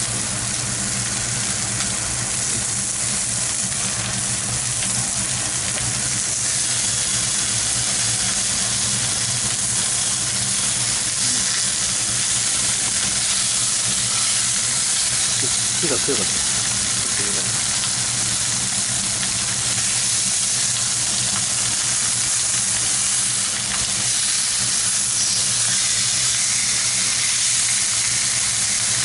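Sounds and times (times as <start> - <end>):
patties sizzling in a frying pan: 0.0 - 29.0
person speaking: 15.4 - 16.4, 17.0 - 17.6.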